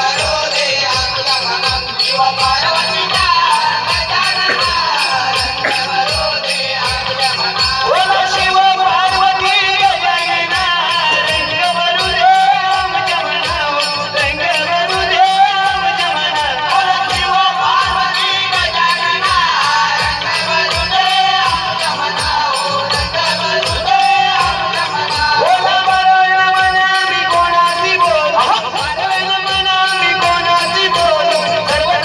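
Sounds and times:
small hand cymbals jingling: 0:00.0 - 0:14.7
folk singing: 0:00.0 - 0:32.0
hand drum beat: 0:04.0 - 0:06.5, 0:10.7 - 0:12.0.

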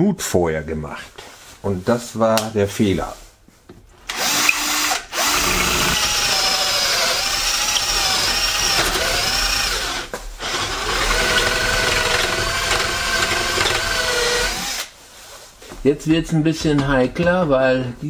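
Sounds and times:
cordless drill whining: 0:04.1 - 0:14.9.

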